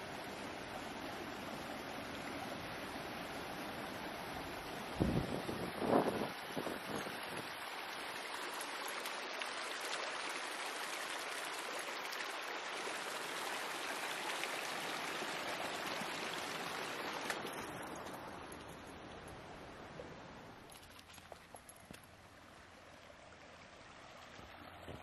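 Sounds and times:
stream rushing over stones: 0.0 - 19.7.

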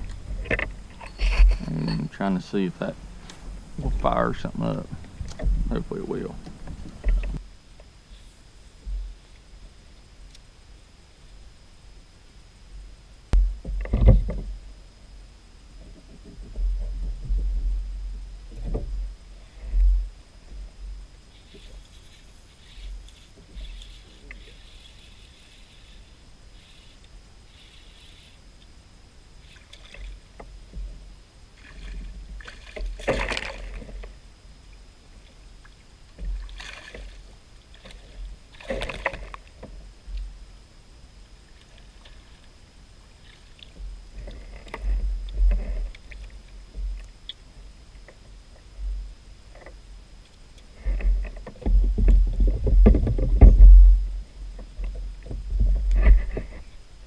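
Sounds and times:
low rumble: 12.6 - 21.2, 51.7 - 56.4
gear knocking on plastic kayak: 51.0 - 56.6.

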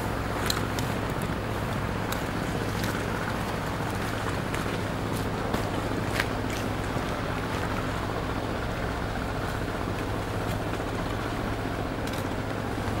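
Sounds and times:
motorboat engine drone: 0.0 - 13.0
light ticks: 0.4 - 1.4.

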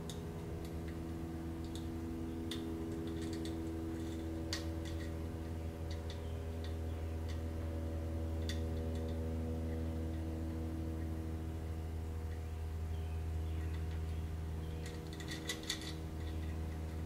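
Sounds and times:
steady low hum: 0.0 - 17.0
small irregular clicks: 1.6 - 7.4, 14.8 - 17.0.

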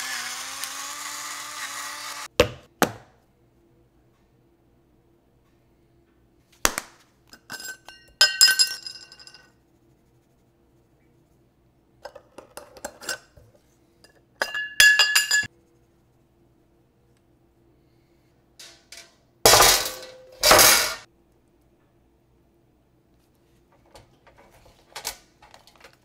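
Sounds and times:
glass shakers clinking and rattling: 7.4 - 9.5, 14.4 - 15.5.

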